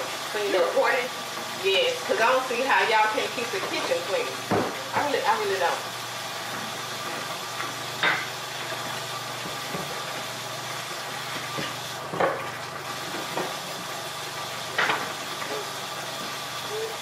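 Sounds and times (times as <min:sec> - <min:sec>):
kitchen tap running: 0:00.0 - 0:17.0
kitchenware clinking: 0:08.0 - 0:08.4.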